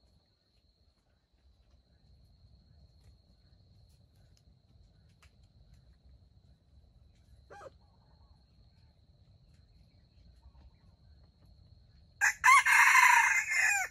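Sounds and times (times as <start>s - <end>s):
insect whine: 9.6s - 13.9s
rooster crowing: 12.2s - 13.9s.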